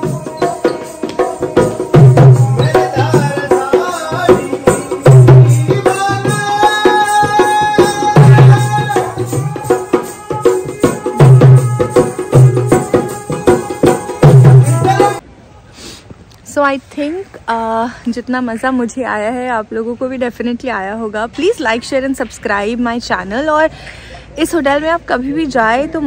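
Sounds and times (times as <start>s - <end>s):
hand drum beating: 0.0s - 15.2s.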